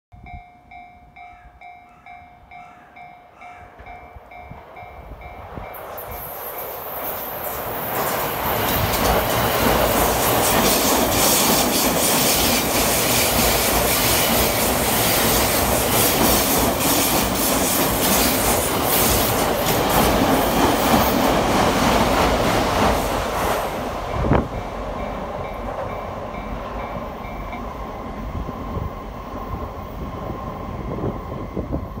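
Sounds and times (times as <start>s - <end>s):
level-crossing warning bell: 0.1s - 21.4s, 24.0s - 28.9s
train wheels rumbling on rails: 3.7s - 32.0s
clickety-clack over rail joints: 5.7s - 27.8s.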